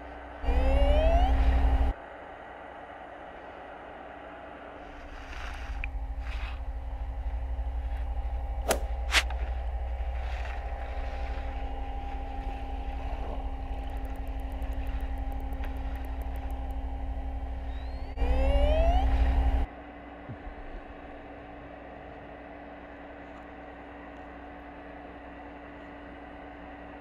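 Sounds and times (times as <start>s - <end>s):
low underwater engine hum: 0.0s - 2.6s, 3.2s - 27.0s
fast train of faint high clicks: 13.8s - 16.8s.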